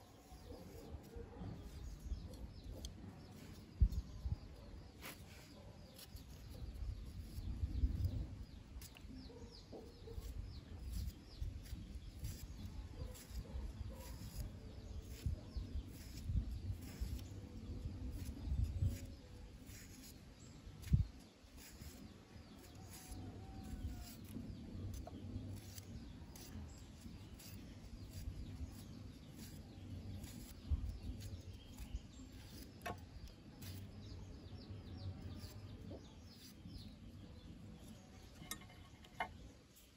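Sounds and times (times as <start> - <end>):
small birds chirping: 0.0 - 39.9
knife slicing leaf: 10.2 - 34.0.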